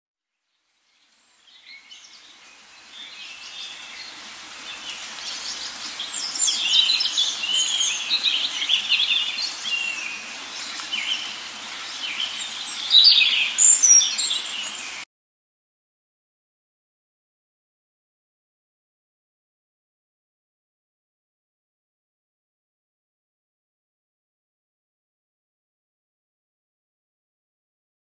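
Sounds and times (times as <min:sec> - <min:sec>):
small birds chirping: 0:00.6 - 0:15.0.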